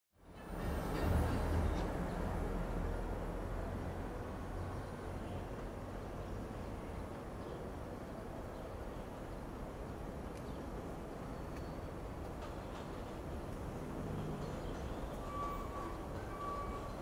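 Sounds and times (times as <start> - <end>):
distant train rumbling on track: 0.2 - 17.0.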